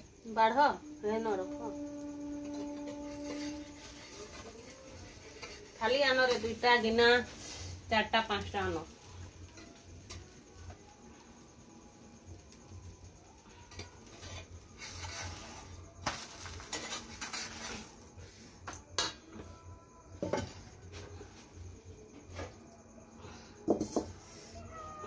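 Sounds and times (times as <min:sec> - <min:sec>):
metal pan and utensils clattering: 0:02.4 - 0:07.5, 0:13.7 - 0:18.1
hiss: 0:07.2 - 0:08.0.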